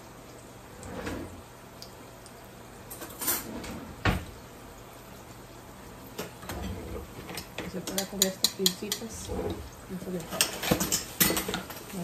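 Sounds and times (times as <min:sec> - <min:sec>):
low steady background noise: 0:00.0 - 0:12.0
kitchen knocks and clatters: 0:02.9 - 0:04.3, 0:06.2 - 0:12.0.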